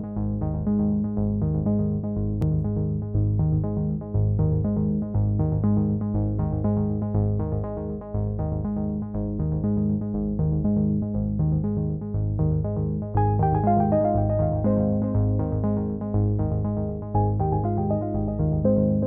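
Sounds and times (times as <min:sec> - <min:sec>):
synthesizer keyboard chords: 0:12.8 - 0:19.0.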